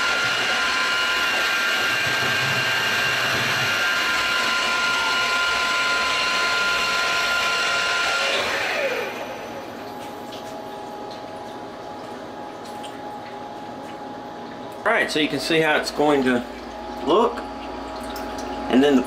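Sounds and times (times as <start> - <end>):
milling machine spindle whine: 0.0 - 10.0.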